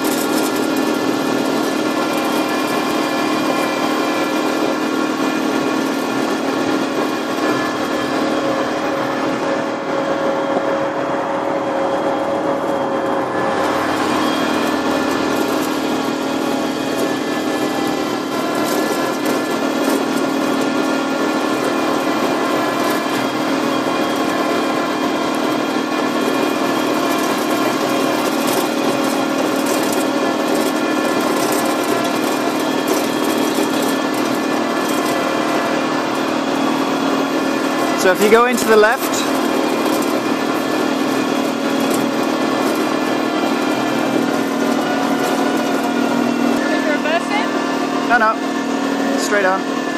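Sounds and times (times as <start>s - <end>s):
gravel crackling under tyres: 0.0s - 47.5s
electric motor whining: 0.0s - 49.9s.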